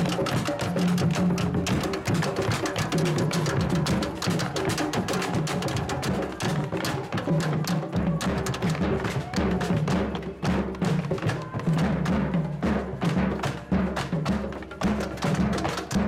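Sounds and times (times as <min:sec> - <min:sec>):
drums played with sticks: 0:00.0 - 0:16.0.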